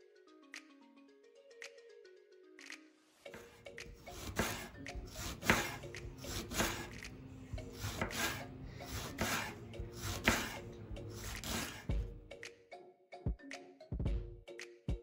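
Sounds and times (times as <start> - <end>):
knife slicing leeks on a board: 3.4 - 12.0.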